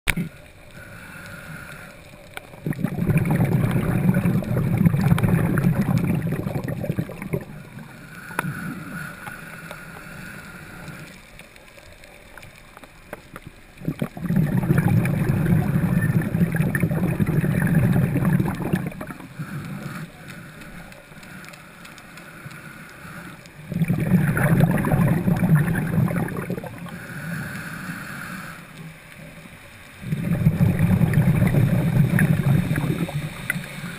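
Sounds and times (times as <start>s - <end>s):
hissing inhalations: 0.2s - 4.0s, 7.5s - 11.2s, 18.7s - 24.4s, 25.4s - 28.9s
underwater bubbling exhalations: 2.3s - 9.4s, 13.2s - 21.6s, 23.3s - 28.9s, 30.0s - 33.9s.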